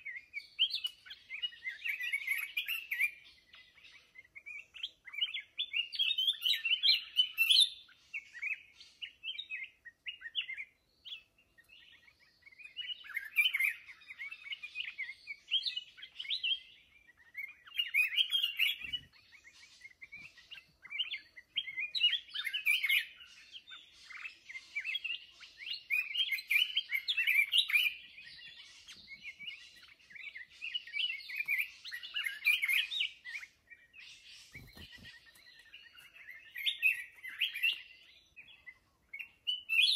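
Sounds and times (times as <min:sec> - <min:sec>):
bird singing broken notes: 0:24.8 - 0:38.0.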